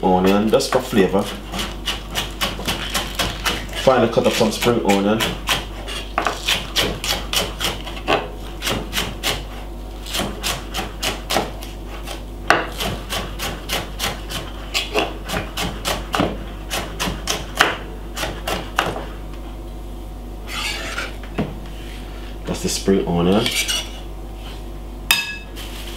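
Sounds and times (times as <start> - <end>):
knife chopping on wooden board: 0.7 - 9.4, 10.0 - 19.1.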